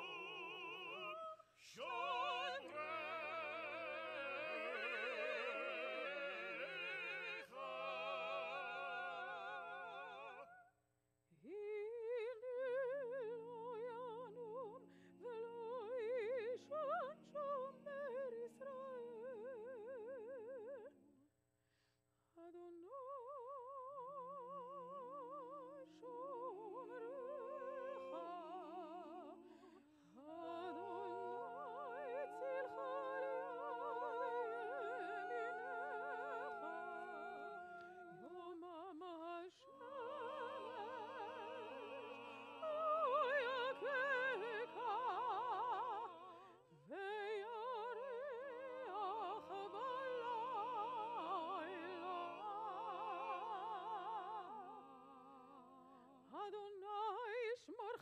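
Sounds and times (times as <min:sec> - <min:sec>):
singing with strong vibrato: 0:00.0 - 0:10.7, 0:22.4 - 0:58.0.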